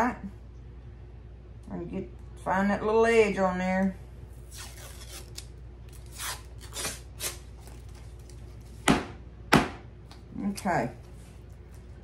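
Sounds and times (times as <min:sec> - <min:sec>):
paper label tearing: 0:04.4 - 0:07.9.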